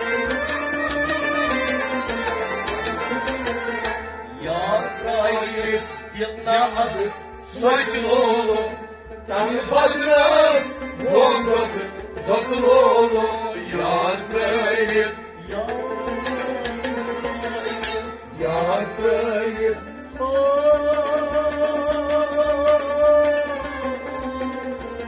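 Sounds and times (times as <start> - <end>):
harmonium and rabab: 0.0 - 25.0
men singing devotional song: 4.3 - 23.2.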